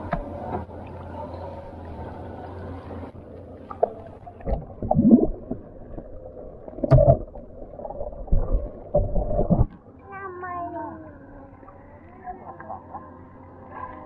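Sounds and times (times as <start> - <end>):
muffled underwater water sloshing: 0.0 - 10.1.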